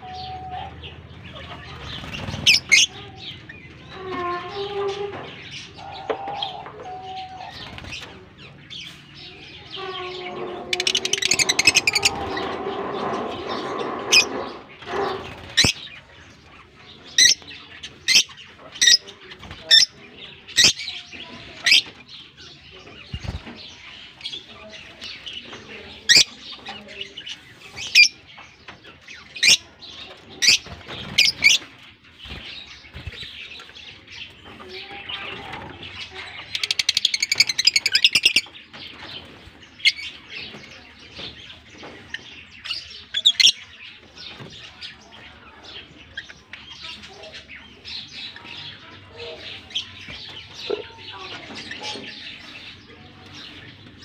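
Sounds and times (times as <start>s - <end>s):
birds chirping: 0.0s - 54.0s
fast rattling bird chatter: 0.8s - 4.1s, 7.4s - 54.0s
wings fluttering: 1.7s - 2.9s, 30.4s - 33.5s.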